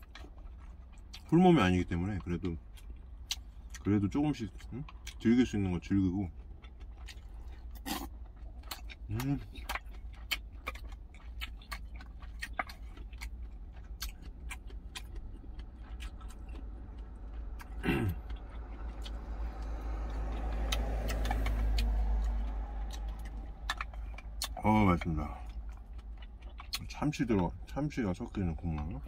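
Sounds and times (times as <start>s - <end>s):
low steady hum: 0.0s - 29.0s
vehicle passing: 14.3s - 26.6s
person murmuring mm: 17.8s - 18.3s.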